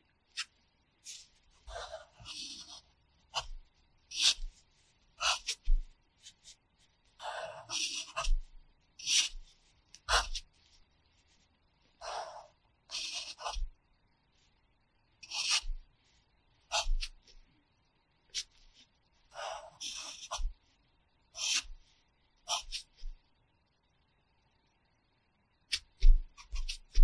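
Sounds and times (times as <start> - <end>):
pencil scratching on paper: 0.4 - 6.6, 7.2 - 10.6, 12.0 - 13.8, 15.2 - 15.8, 16.7 - 17.3, 18.3 - 20.5, 21.3 - 21.8, 22.5 - 23.2, 25.7 - 27.0.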